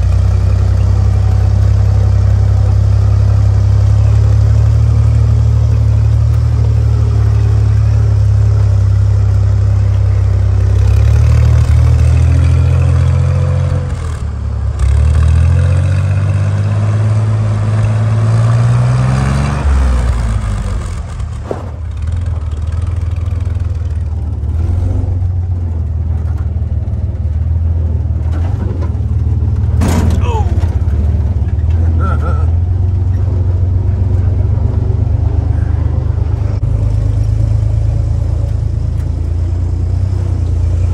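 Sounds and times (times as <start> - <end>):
car engine running under load: 0.0 - 40.9
short clunk: 29.8 - 30.8.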